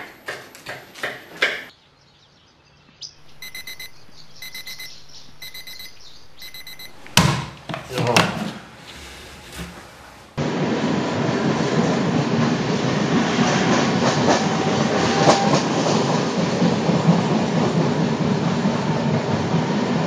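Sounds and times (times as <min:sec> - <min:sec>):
digital alarm clock beeping: 0:03.3 - 0:07.0.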